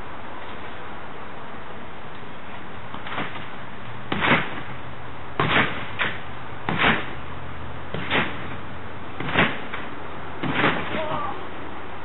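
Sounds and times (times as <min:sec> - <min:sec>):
trampoline thumping: 0:02.7 - 0:11.5.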